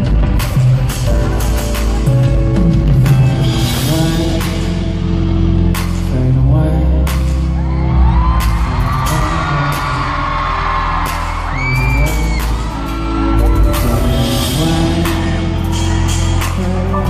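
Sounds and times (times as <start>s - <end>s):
live pop song: 0.0s - 17.0s
fans screaming and whooping: 7.4s - 17.0s.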